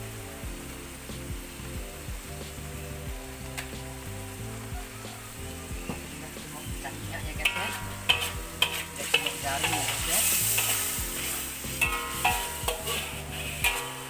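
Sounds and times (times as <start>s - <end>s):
sauce sizzling in oil: 0.0s - 14.0s
wok ringing: 6.9s - 14.0s
metal spatula scraping a wok: 7.4s - 14.0s.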